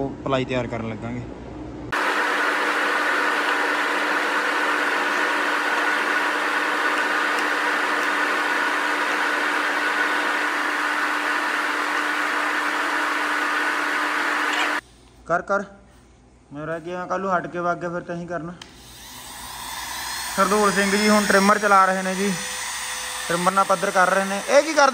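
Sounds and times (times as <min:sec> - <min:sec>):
electric router running: 0:01.9 - 0:14.8, 0:18.8 - 0:24.9.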